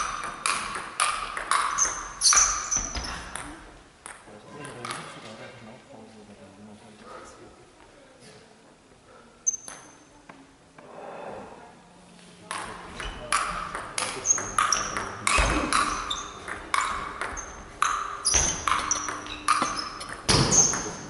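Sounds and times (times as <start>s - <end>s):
table tennis ball clicks: 9.5s - 10.0s, 12.5s - 21.0s.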